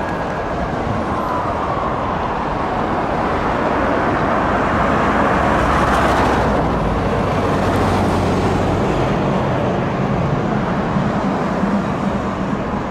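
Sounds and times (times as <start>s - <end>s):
passing cars: 0.0s - 12.9s.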